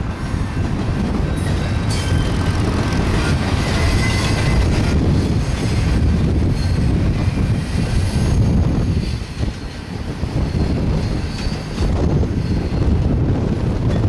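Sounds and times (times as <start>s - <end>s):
train wheels rumbling on rail: 0.0s - 14.0s
faint high wheel squeals: 3.2s - 4.7s, 10.4s - 13.0s.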